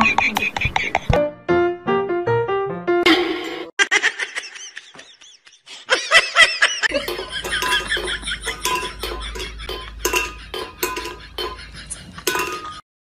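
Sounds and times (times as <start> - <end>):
small hard objects clinking: 7.0 - 11.7, 12.3 - 12.8.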